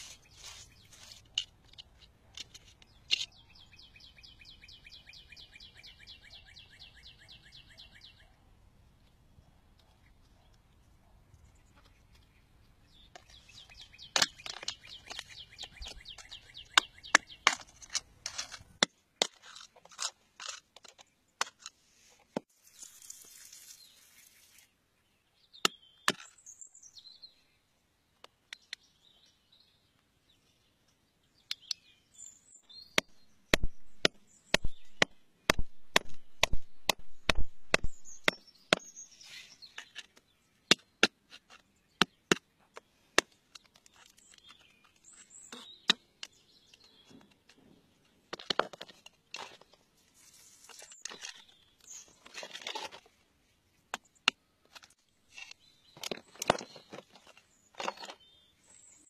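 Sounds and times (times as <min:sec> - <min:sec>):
loose stone scraping and crumbling: 0:13.1 - 0:24.4, 0:48.3 - 0:53.2, 0:54.6 - 0:58.4
metal tool chipping at rock: 0:33.0 - 0:38.9.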